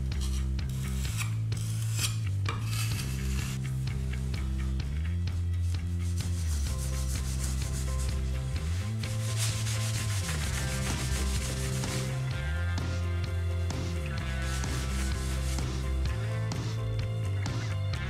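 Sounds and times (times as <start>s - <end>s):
background music with bass line: 0.0s - 18.0s
cloth rubbing wax into wood: 5.6s - 12.4s, 14.2s - 16.2s.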